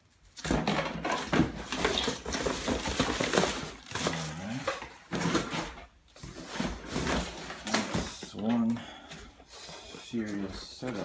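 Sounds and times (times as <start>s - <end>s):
cardboard and foam shifting: 0.5s - 8.7s.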